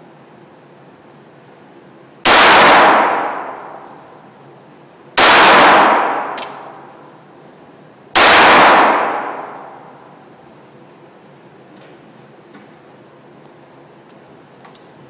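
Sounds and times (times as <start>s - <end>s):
pistol shots echoing: 2.3s - 4.0s, 5.2s - 7.0s, 8.2s - 10.1s.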